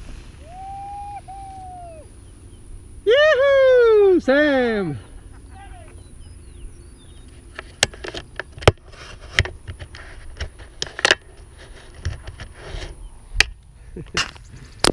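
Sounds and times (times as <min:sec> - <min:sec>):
rustling: 0:00.0 - 0:02.8.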